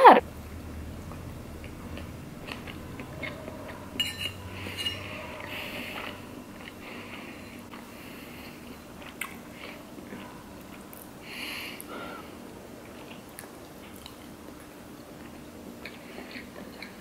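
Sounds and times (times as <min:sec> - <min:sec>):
chewing and mouth sounds: 0:01.0 - 0:04.0, 0:04.6 - 0:11.2, 0:11.8 - 0:17.0.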